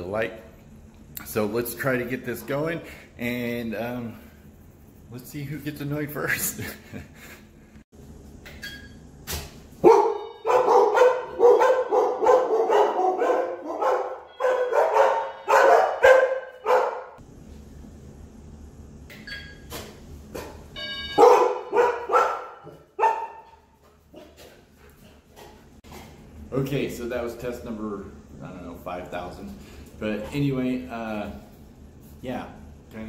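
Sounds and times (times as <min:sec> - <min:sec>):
dogs barking: 0:09.8 - 0:17.2, 0:21.2 - 0:24.4
electronic doorbell chime: 0:10.0 - 0:10.7, 0:14.2 - 0:15.8, 0:20.8 - 0:21.7.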